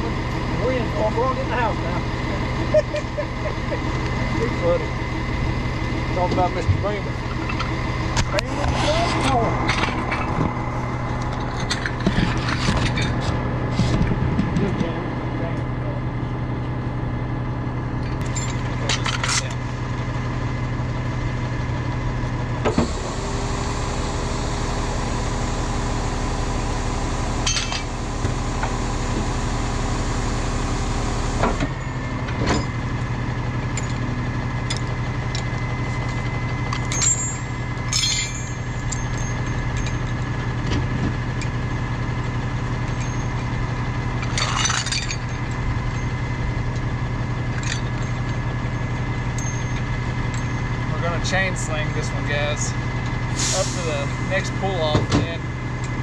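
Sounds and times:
truck engine idling: 0.0 - 56.0
metallic clinks and knocks: 18.2 - 19.6, 36.7 - 40.4, 42.8 - 43.5, 44.2 - 46.2, 47.5 - 50.7.

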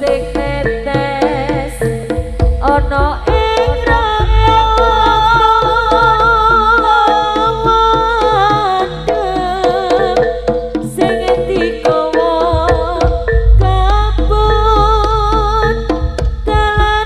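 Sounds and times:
hand drums beating: 0.0 - 17.0
kettle gongs beating: 2.4 - 6.6, 12.5 - 16.8
wavering melody line: 3.5 - 6.3, 12.3 - 16.2
low gong drone: 4.2 - 6.1, 13.0 - 16.6.

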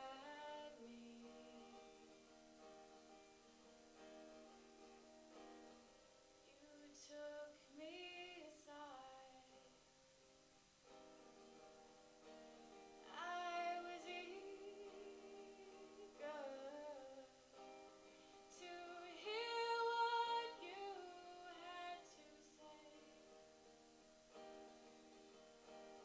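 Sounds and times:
woman singing: 0.0 - 2.3, 6.5 - 9.8, 13.0 - 17.6, 18.4 - 23.2
acoustic guitar: 0.0 - 26.0.

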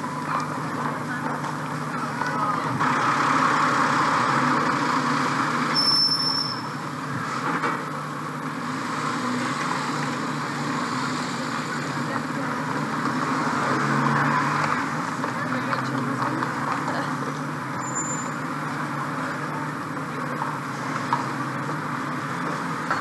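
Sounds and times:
lorry engine passing: 0.0 - 5.8, 8.3 - 17.8
street hubbub of voices: 0.0 - 23.0
high-pitched squeal: 5.7 - 6.8.

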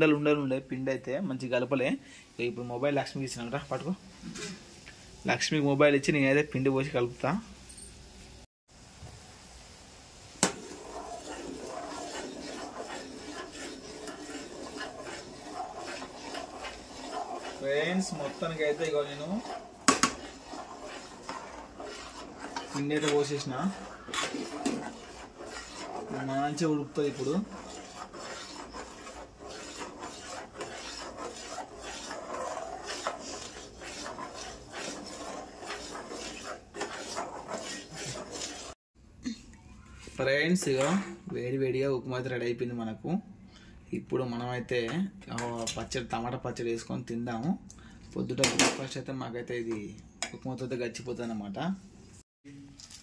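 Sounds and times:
metal spoon scraping metal pot: 10.4 - 38.8, 40.6 - 41.2.

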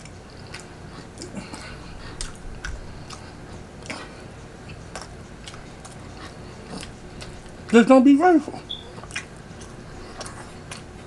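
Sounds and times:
chewing food: 0.0 - 7.9, 8.5 - 11.0
wet mouth clicks and smacks: 2.2 - 4.0, 4.7 - 6.0, 9.0 - 10.9.

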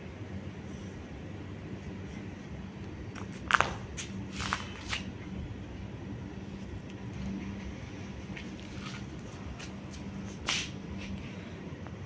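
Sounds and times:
steady low hum: 0.0 - 12.0
puppies scuffing on concrete: 3.1 - 5.1, 8.3 - 11.4.

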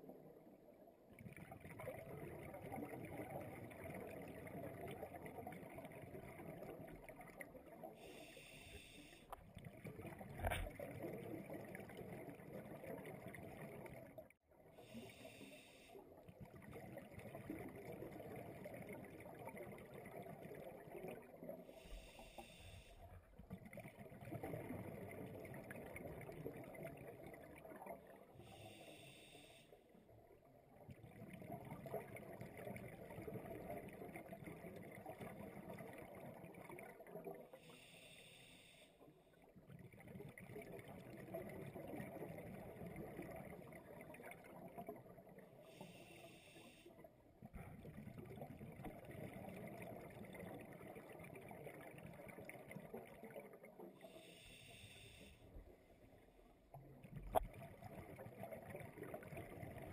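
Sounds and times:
regulator inhalation hiss: 37.7 - 38.9, 45.8 - 46.8, 54.2 - 55.4.

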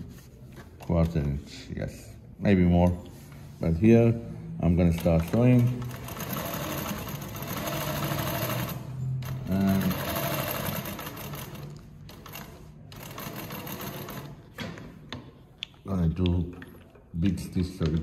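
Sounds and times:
sewing machine stitching: 4.8 - 14.5.

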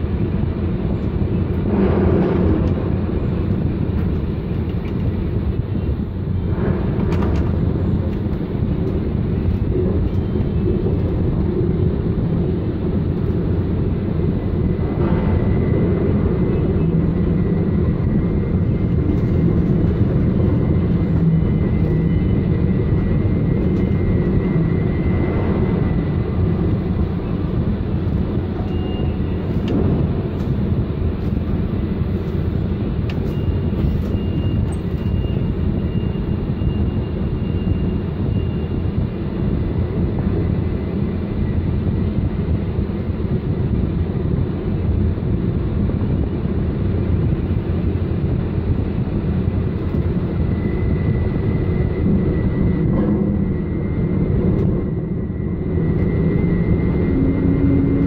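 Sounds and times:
crane machinery low rumble: 0.0 - 58.0
faint high whine: 9.0 - 43.9.

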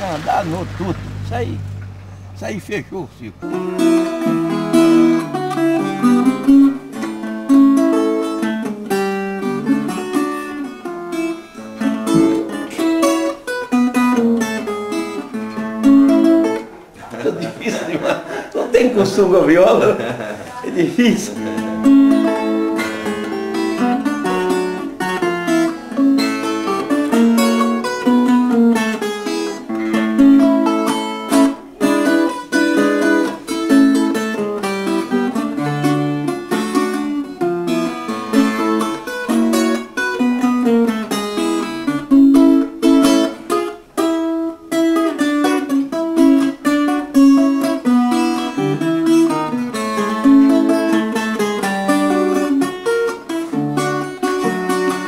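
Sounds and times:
plucked string instrument tune: 0.0 - 55.0.

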